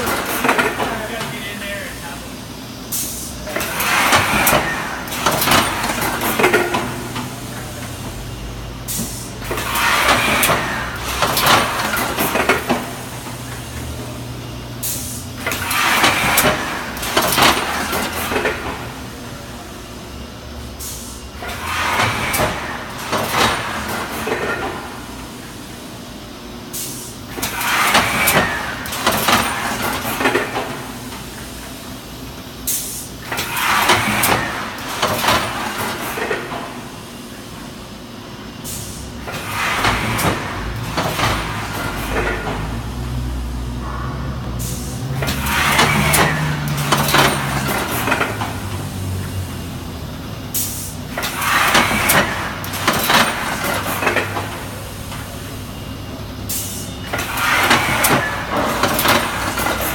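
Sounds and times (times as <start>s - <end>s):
mechanical clatter: 44.9s - 49.4s, 50.4s - 55.3s, 57.0s - 59.9s.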